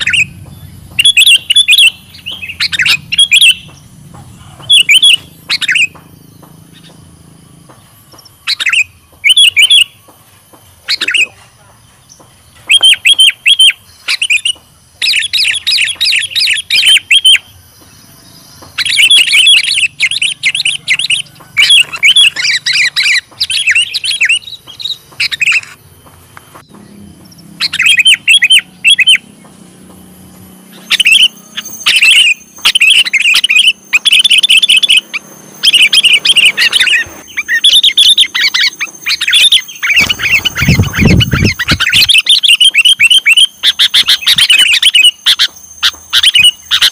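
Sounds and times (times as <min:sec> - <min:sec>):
bird chirping: 0:00.0 - 0:46.9.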